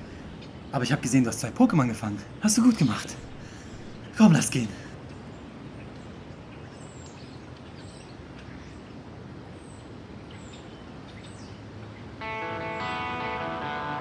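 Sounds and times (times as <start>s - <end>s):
outdoor background noise: 0.0s - 14.0s
guitar music: 12.2s - 14.0s.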